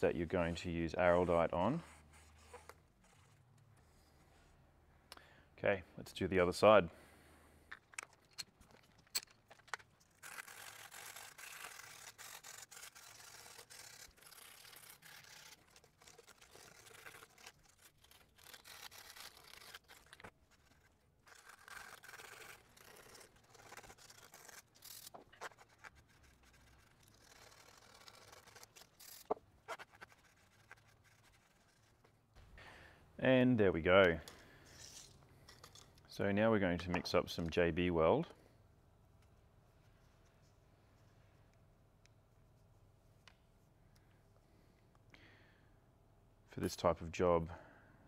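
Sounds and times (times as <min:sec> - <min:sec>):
sandpaper rasping: 0:10.1 - 0:32.0.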